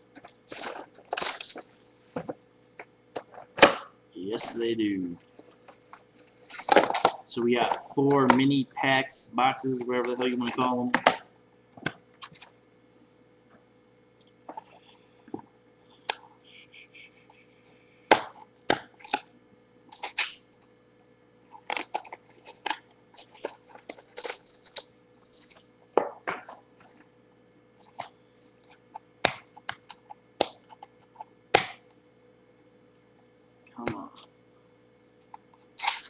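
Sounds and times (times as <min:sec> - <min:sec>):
faint steady hum: 0:00.0 - 0:36.0
packaging clicks and crinkles: 0:00.1 - 0:02.0, 0:19.9 - 0:20.7, 0:21.5 - 0:25.7, 0:27.8 - 0:28.8, 0:35.0 - 0:36.0.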